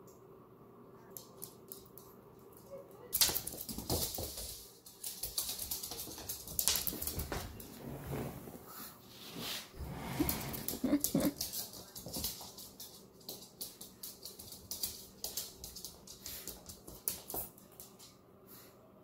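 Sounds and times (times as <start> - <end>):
dog claws ticking on floor: 1.2 - 7.6, 10.5 - 18.2.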